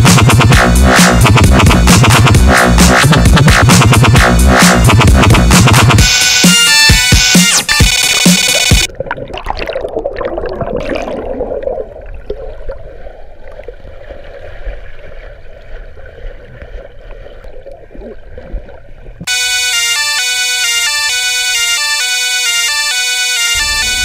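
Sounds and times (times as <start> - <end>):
electronic music: 0.0 - 8.9, 19.3 - 24.0
underwater churning and bubbling: 8.9 - 19.3.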